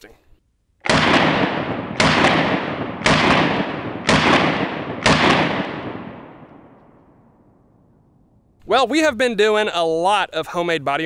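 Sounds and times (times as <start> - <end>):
pistol shots echoing: 0.8 - 7.2.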